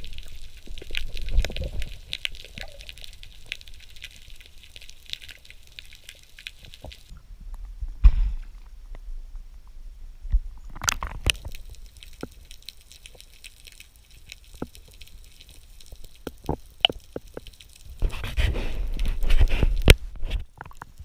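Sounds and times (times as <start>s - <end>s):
water sloshing and gurgling: 0.0s - 7.8s, 10.5s - 21.0s
underwater clicks and knocks: 10.3s - 12.4s, 16.1s - 18.2s.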